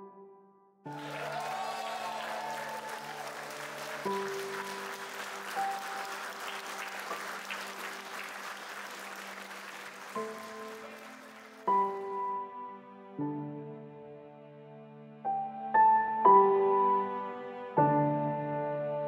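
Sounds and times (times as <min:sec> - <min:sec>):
guests applauding: 0:00.9 - 0:12.2.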